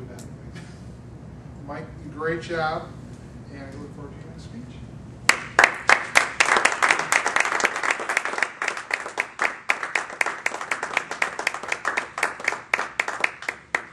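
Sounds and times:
sharp individual claps: 5.3 - 13.9
small audience applauding: 5.3 - 13.9.

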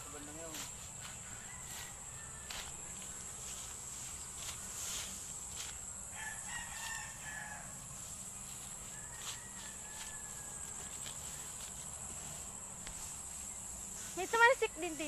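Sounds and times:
footsteps through leafy weeds: 0.0 - 15.0
high insect drone: 0.0 - 15.0
rooster crowing: 1.2 - 2.9, 6.1 - 7.9, 8.7 - 11.7.

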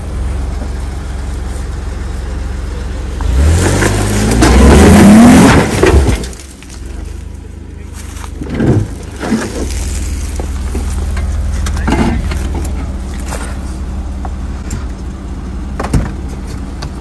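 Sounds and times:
engine running under low load: 0.0 - 17.0.

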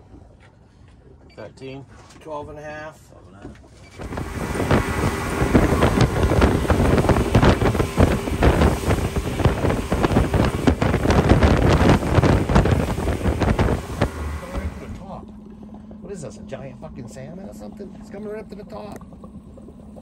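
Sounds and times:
rush of spray and wake: 4.0 - 15.1
wind buffeting microphone: 4.0 - 15.1.

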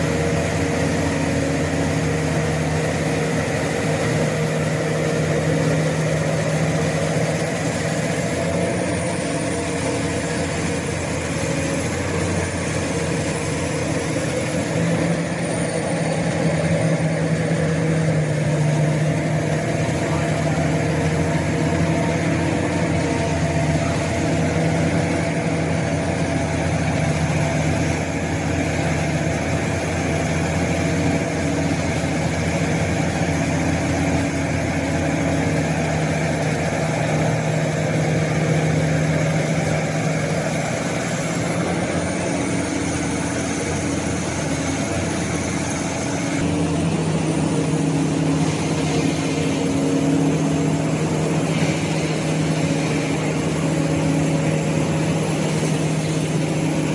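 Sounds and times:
diesel machinery running: 0.0 - 56.9.

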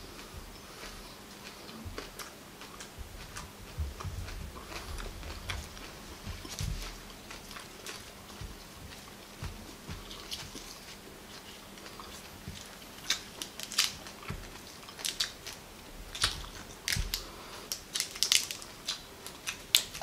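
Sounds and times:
chewing flowers: 0.0 - 20.0
flowers being pulled apart: 12.1 - 20.0.

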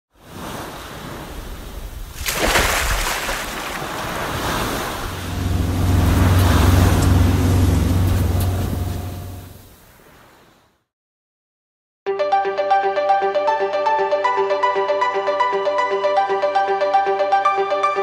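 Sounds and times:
sea waves washing: 0.2 - 10.6.

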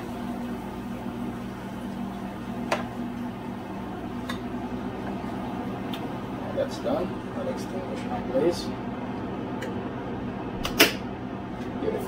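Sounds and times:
oil sizzling in a frying pan: 0.0 - 6.6
steady low hum: 0.0 - 12.0.

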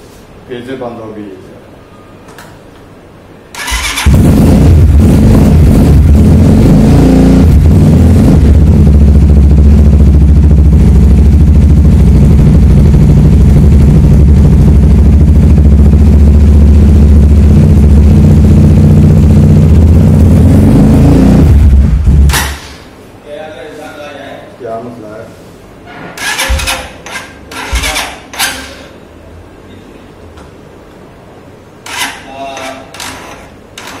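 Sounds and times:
motorcycle engine revving and idling: 3.6 - 22.8, 26.2 - 28.7, 31.8 - 34.0.

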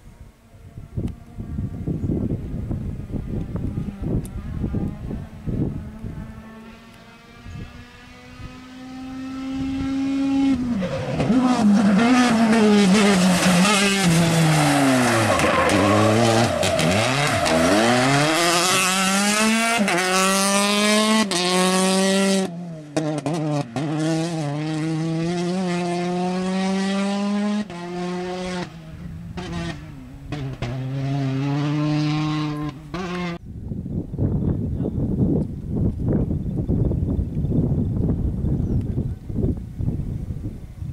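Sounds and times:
distant rally car accelerating: 0.4 - 33.5
rally car engine revving: 2.9 - 33.4.

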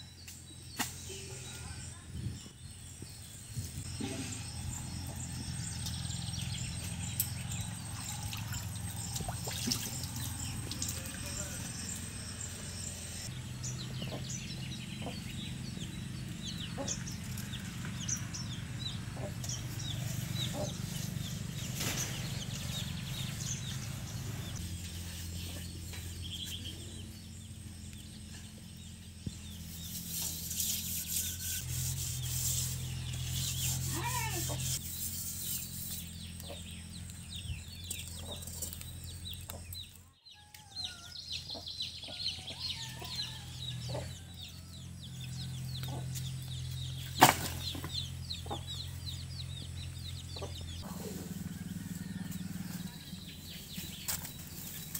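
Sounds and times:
small birds chirping: 0.0 - 54.9
chickens clucking: 19.0 - 23.0, 45.4 - 54.5.

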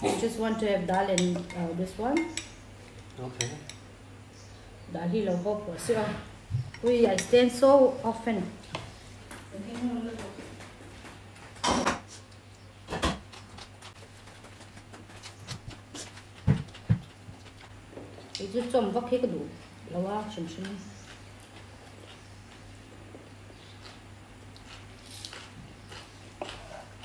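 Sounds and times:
faint steady hum: 0.0 - 27.0
soft chewing: 13.3 - 18.6, 20.6 - 27.0.

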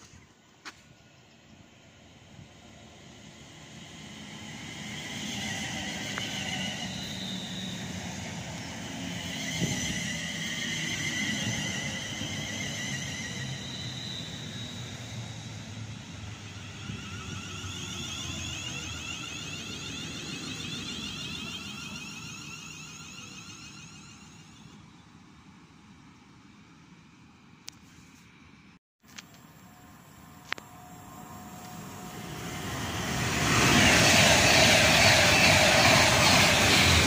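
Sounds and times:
train wheels rumbling on rail: 0.0 - 24.7, 29.2 - 37.0
high wavering whines: 1.5 - 25.3, 29.1 - 37.0.

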